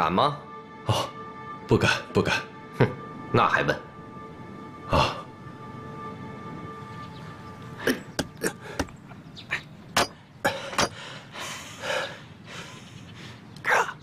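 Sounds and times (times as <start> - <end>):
held background music chord: 0.0 - 9.3.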